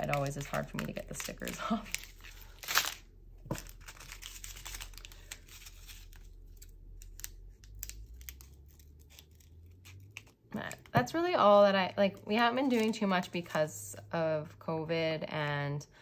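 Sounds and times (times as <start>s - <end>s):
plastic bags crinkling: 0.0s - 10.8s.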